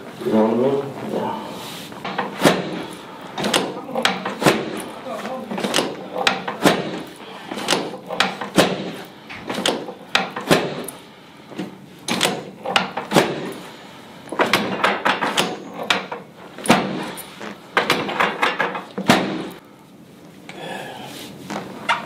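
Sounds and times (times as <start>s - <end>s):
sharp knocks and clacks: 2.0s - 11.0s, 11.6s - 13.6s, 14.3s - 19.6s.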